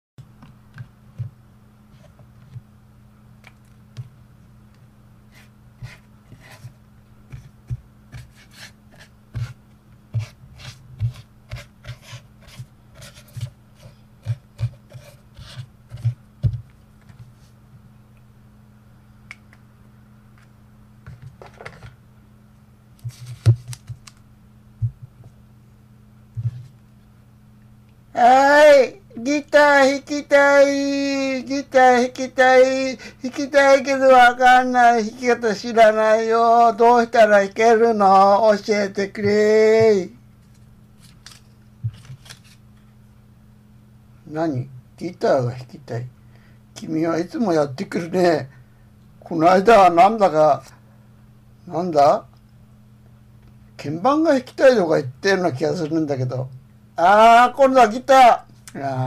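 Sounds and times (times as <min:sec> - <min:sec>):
steady low hum: 0:00.2 - 0:59.0
pen tapping and scratching on paper: 0:07.3 - 0:13.5.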